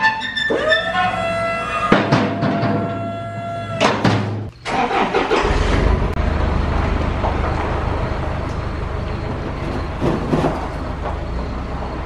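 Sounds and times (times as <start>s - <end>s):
truck engine driving off: 4.6s - 12.0s.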